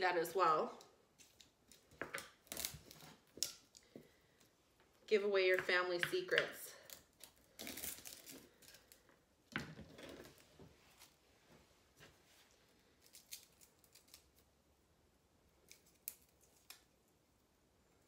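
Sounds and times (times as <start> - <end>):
garlic skin crackling: 1.2 - 4.2, 5.7 - 9.1, 12.9 - 14.5, 15.6 - 16.9.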